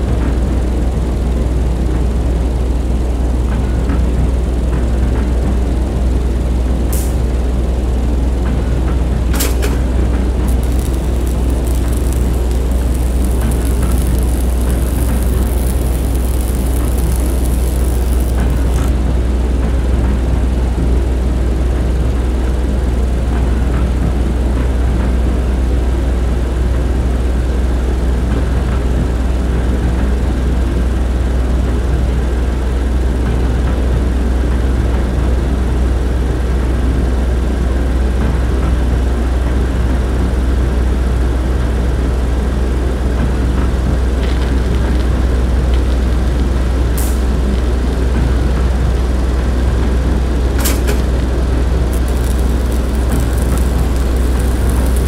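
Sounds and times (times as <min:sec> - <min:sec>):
train rumbling: 0:00.0 - 0:55.0.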